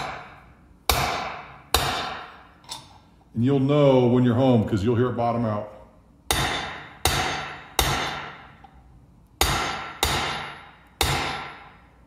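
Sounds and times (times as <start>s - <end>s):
hammer striking metal: 0.0s - 2.9s, 6.3s - 8.7s, 9.4s - 11.8s.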